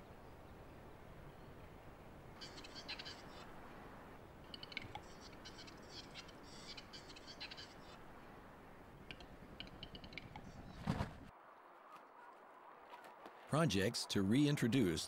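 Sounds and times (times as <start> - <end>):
bird clicking and whetting song: 4.5 - 8.0, 9.0 - 10.9.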